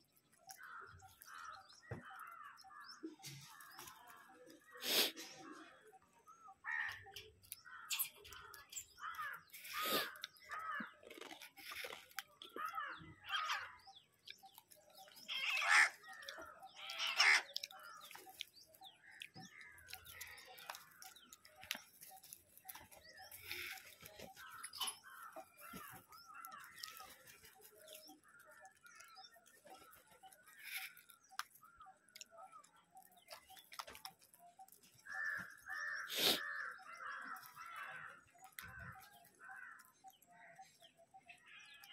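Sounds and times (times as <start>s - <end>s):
crows cawing: 0.6s - 2.8s, 6.6s - 11.0s, 12.5s - 13.8s, 15.3s - 18.1s, 35.0s - 39.9s
sharp clicks of beaks pecking: 14.2s - 27.4s.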